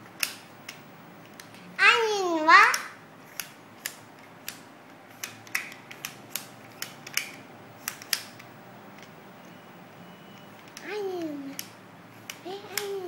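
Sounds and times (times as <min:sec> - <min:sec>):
plastic toy cars clicking: 0:05.2 - 0:09.1, 0:10.6 - 0:13.0.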